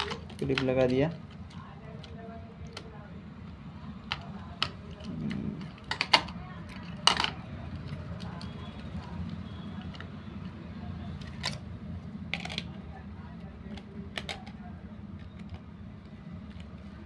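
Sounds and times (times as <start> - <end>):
plastic clicks and taps: 13.6 - 15.7.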